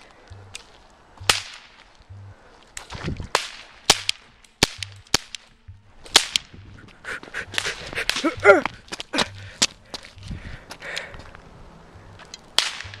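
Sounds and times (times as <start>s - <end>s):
cap gun cracks: 3.3s - 5.5s, 6.1s - 6.6s, 12.3s - 13.0s.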